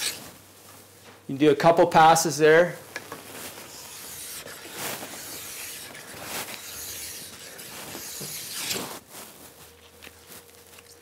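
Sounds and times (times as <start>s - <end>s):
stone rubbing on steel edge: 0.0s - 0.2s, 3.6s - 8.9s.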